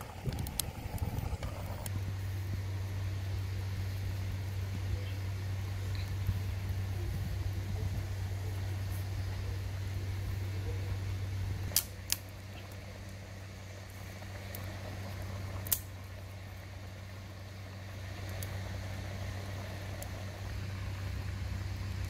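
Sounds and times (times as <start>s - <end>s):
low steady hum: 0.0s - 22.0s
dry twigs snapping: 11.6s - 12.8s, 15.6s - 15.9s.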